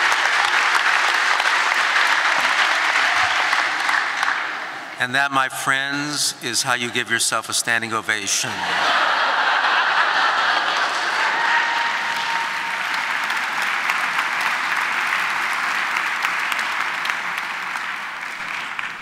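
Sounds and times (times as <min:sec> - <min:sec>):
audience applause: 0:00.0 - 0:04.9, 0:08.6 - 0:19.0.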